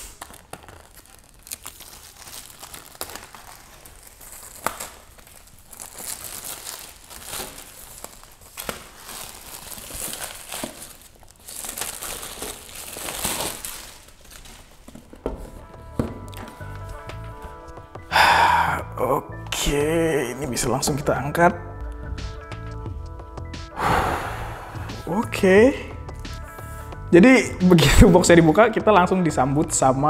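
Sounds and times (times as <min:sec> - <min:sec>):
plastic wrap crinkling and tearing: 0:00.0 - 0:16.6.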